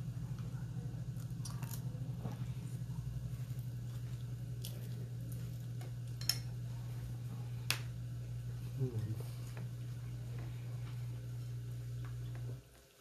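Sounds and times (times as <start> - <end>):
steady low hum: 0.0 - 13.0
person chewing food: 1.1 - 7.2.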